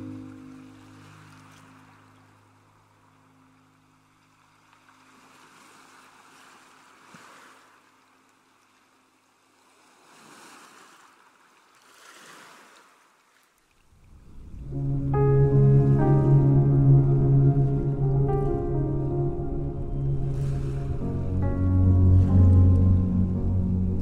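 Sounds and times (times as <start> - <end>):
held notes of music: 0.0 - 1.5, 14.5 - 24.0
faint ocean surf: 0.0 - 24.0.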